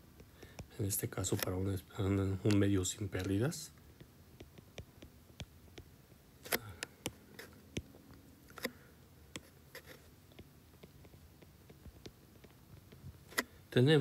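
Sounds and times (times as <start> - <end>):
stylus tapping on screen: 4.0 - 8.2, 9.3 - 13.2.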